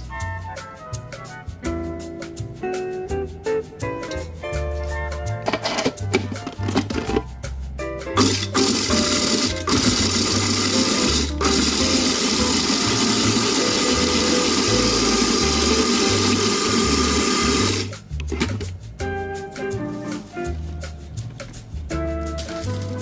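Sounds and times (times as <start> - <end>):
background music: 0.0 - 23.0
food processor motor running: 8.2 - 17.9.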